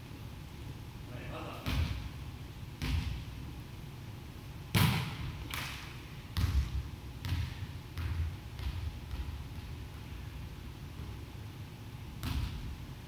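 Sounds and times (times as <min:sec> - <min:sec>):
volleyball bouncing on wooden floor: 0:01.6 - 0:02.1, 0:02.8 - 0:03.3, 0:04.7 - 0:10.1, 0:12.2 - 0:12.8.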